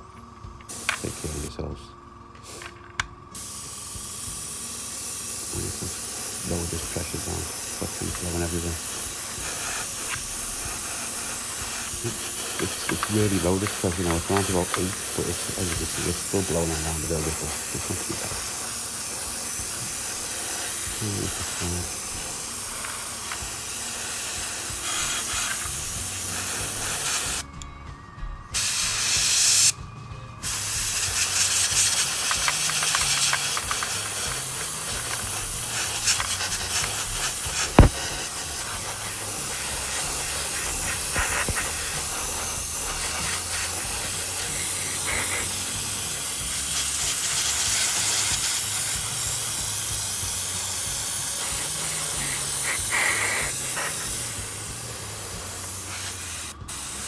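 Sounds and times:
airbrush hissing: 0.7 - 1.7, 2.4 - 2.7, 3.3 - 27.5, 28.5 - 29.8, 30.4 - 57.0
sharp click: 37.8 - 38.0.

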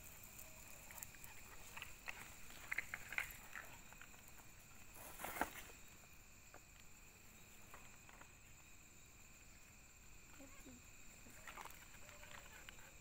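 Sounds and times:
soft rustles: 0.6 - 5.9.

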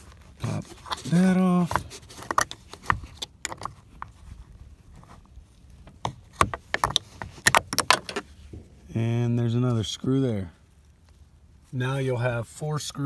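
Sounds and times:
metal scraping hard plastic: 0.0 - 8.8.

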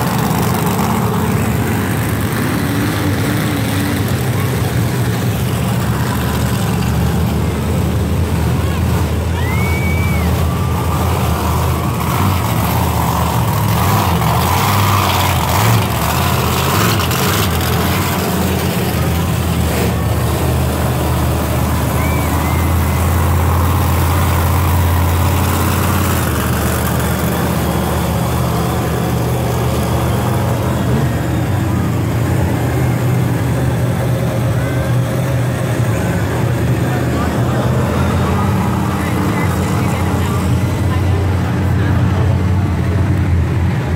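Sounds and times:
monster truck engines rumbling: 0.0 - 43.9.

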